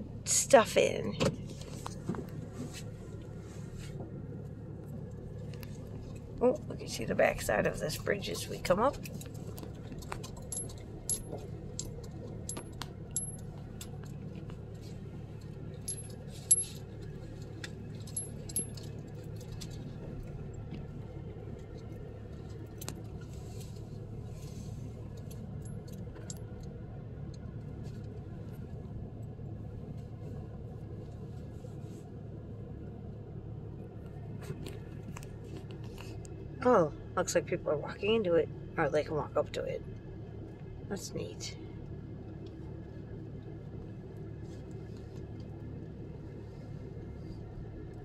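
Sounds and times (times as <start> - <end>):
pickup engine and tyres hum: 0.0 - 48.0
metallic jingles and clicks: 10.1 - 14.0, 15.8 - 16.9, 18.0 - 19.8.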